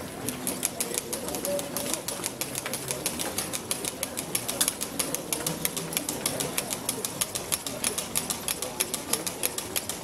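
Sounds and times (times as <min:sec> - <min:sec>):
faint crowd murmur: 0:00.0 - 0:10.0
marching footsteps on cobblestones: 0:00.0 - 0:10.0.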